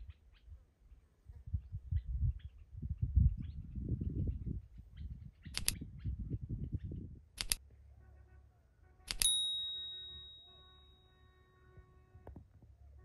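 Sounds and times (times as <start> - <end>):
mouse double clicks: 5.5 - 5.8, 7.4 - 7.6, 9.1 - 9.3
bright bell ding: 9.2 - 11.1.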